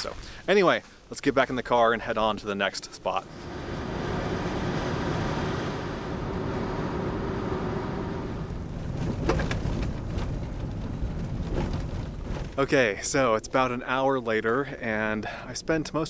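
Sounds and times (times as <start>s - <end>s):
road noise: 3.0s - 12.8s
car engine: 3.2s - 12.6s.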